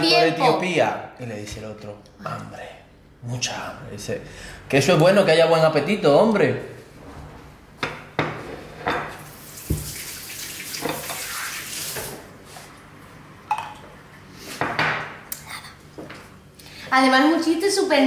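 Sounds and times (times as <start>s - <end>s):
tap running into sink: 9.4s - 12.2s.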